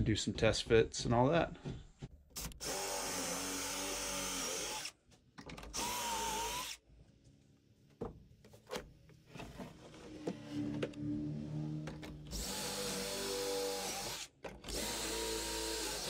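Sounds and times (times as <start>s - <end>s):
cordless drill drilling into wood: 2.4s - 5.0s, 5.7s - 6.8s, 12.3s - 16.0s.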